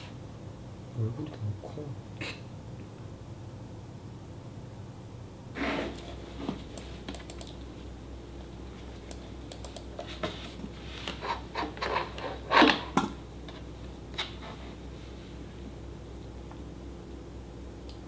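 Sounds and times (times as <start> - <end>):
laptop keyboard typing: 6.7 - 7.6, 9.1 - 10.0.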